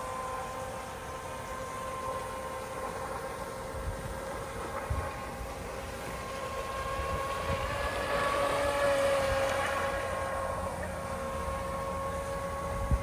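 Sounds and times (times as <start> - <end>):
rc speedboat motor whining: 0.0 - 13.0
wind buffeting microphone: 3.7 - 10.3, 12.3 - 13.0.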